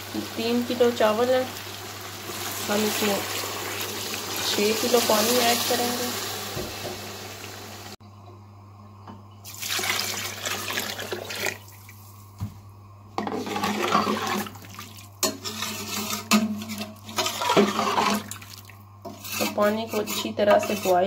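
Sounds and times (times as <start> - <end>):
water pouring into a pot: 1.5 - 7.9, 9.4 - 12.0.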